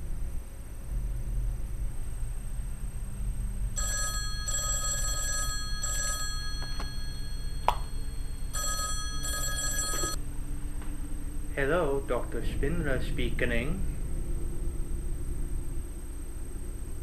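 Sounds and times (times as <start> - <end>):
electronic telephone ringing: 3.8 - 10.2.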